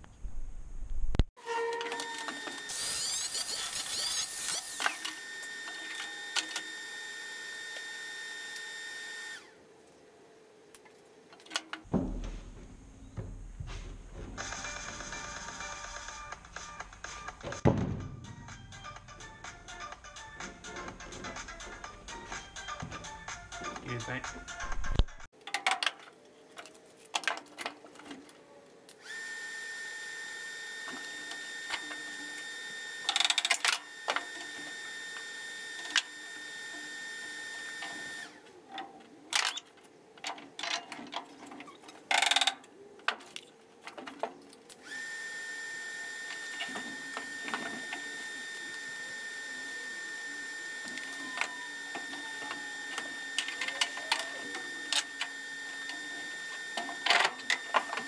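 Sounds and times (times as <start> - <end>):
high machine whine: 1.4 - 9.7, 44.8 - 58.0.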